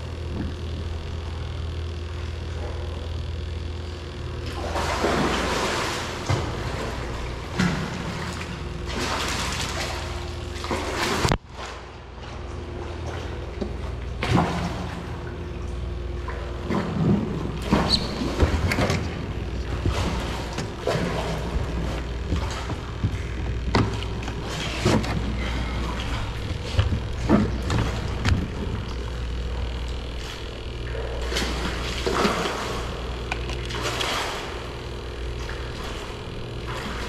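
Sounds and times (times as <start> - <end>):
water splashing and trickling: 4.4 - 29.6, 30.2 - 37.0
low rumble: 14.3 - 37.0.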